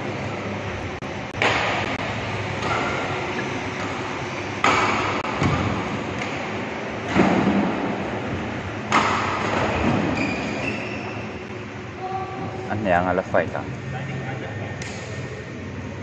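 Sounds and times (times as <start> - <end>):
steady background rush: 0.0 - 16.0
rackets hitting shuttlecock: 1.3 - 6.5.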